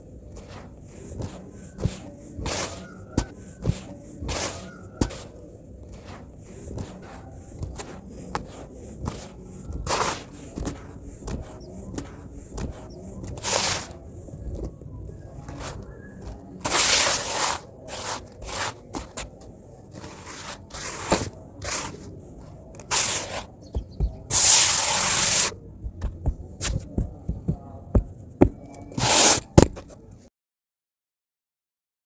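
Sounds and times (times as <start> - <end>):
hands raking sand: 0.2 - 25.6, 28.4 - 29.8.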